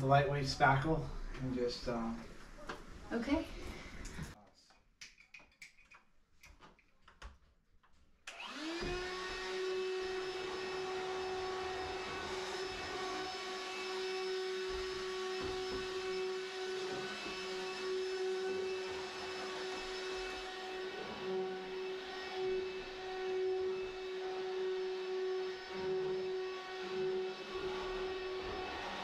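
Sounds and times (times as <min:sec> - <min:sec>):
electric motor whining: 0:08.3 - 0:29.0.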